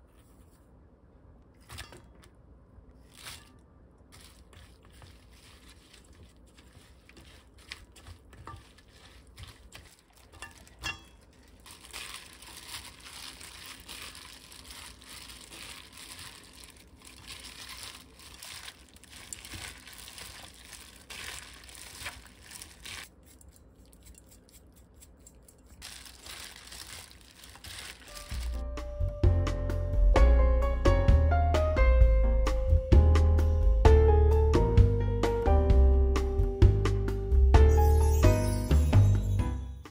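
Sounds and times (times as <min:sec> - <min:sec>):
plastic gloves crinkling: 0:02.9 - 0:28.8
coated stems squishing: 0:03.0 - 0:28.6.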